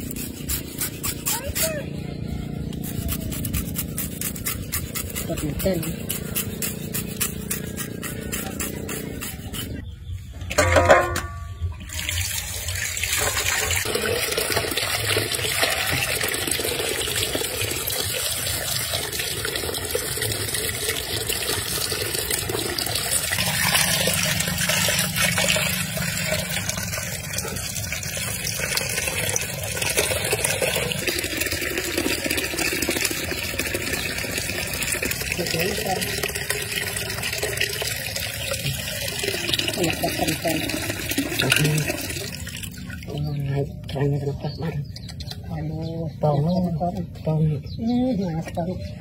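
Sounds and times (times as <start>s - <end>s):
water pouring into plastic basin: 11.8s - 43.4s
water splashing: 11.8s - 44.0s.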